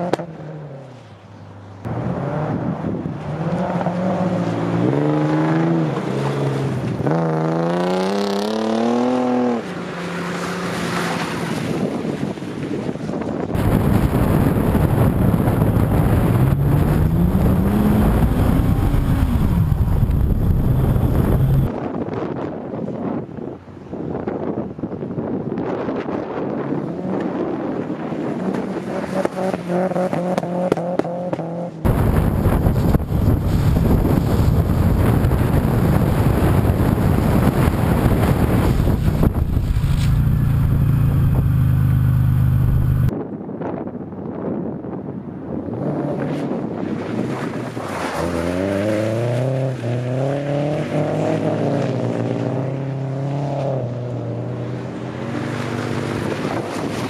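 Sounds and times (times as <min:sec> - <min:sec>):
wind buffeting microphone: 0:11.5 - 0:29.4, 0:31.9 - 0:41.6
heavy rushing noise: 0:13.5 - 0:21.8, 0:31.8 - 0:43.1
car engine revving: 0:13.6 - 0:21.7, 0:28.8 - 0:43.1.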